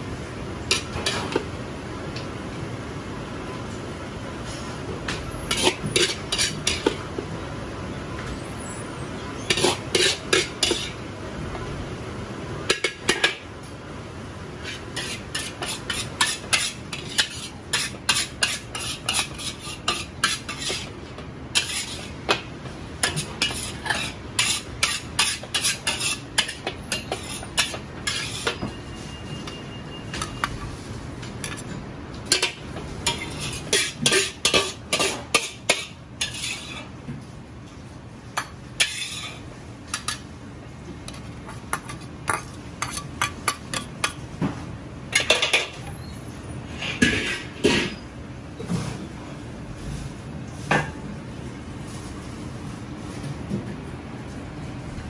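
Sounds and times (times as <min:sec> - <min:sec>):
metal utensils clanking on wok: 0:05.5 - 0:07.0, 0:09.5 - 0:11.0, 0:12.7 - 0:13.4, 0:14.6 - 0:20.9, 0:21.5 - 0:28.7, 0:32.3 - 0:36.9, 0:38.8 - 0:40.3.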